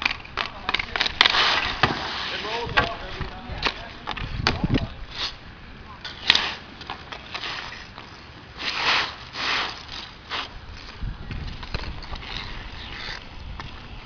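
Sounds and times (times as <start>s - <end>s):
hockey sticks tapping puck: 0.0s - 4.9s
scraping swishes: 8.6s - 10.5s.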